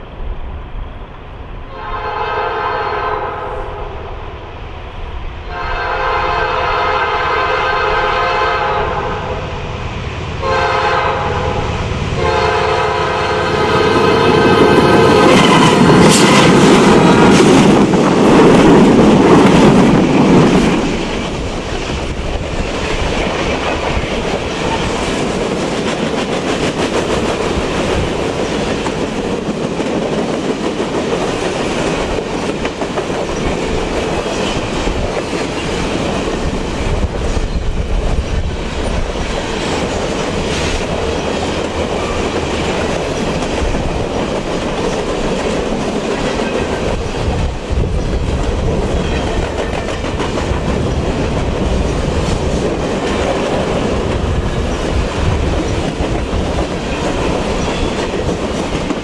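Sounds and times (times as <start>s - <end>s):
train rumble: 0.0s - 59.0s
train wheels clattering on rail: 13.3s - 59.0s.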